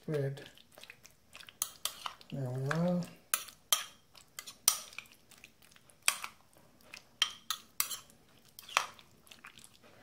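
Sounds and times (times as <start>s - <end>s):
spoon scraping bowl: 1.4s - 5.2s, 6.0s - 9.1s.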